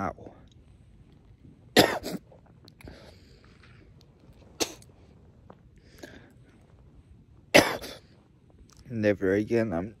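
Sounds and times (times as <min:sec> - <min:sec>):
man coughing: 0:01.8 - 0:02.3, 0:07.5 - 0:08.0.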